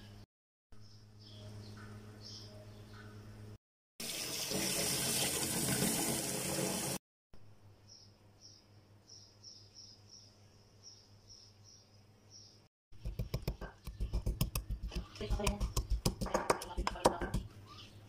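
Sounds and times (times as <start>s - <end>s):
tap water running into steel bowl: 4.0s - 7.0s
pestle pounding in mortar: 13.0s - 17.5s.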